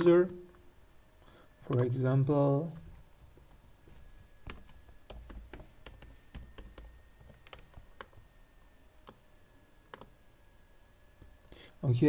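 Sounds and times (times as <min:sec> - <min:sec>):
computer keyboard typing: 0:04.5 - 0:08.3, 0:09.9 - 0:10.1.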